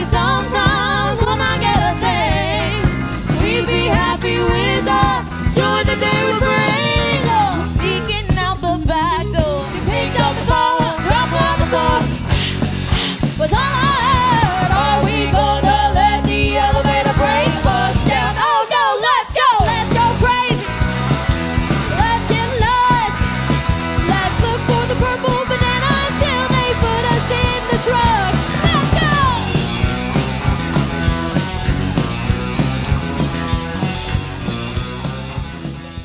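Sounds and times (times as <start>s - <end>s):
woman singing: 0.0s - 12.2s, 13.4s - 20.8s, 21.9s - 23.3s, 24.0s - 29.5s
rock band playing: 0.0s - 36.0s
drum strokes: 9.4s - 18.5s, 19.6s - 36.0s.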